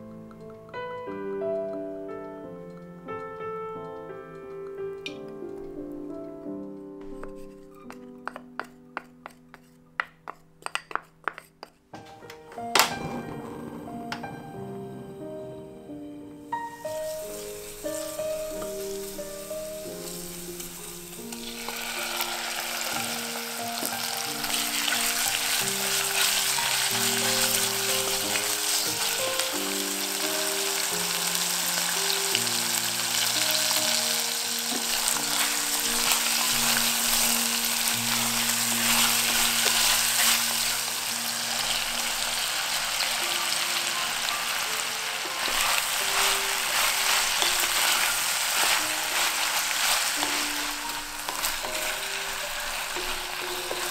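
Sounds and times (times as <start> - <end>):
soft background music: 0.0 - 10.7, 11.4 - 53.9
wooden spatula stirring: 7.0 - 12.6, 34.6 - 53.9
meat sizzling in hot oil: 16.7 - 53.9.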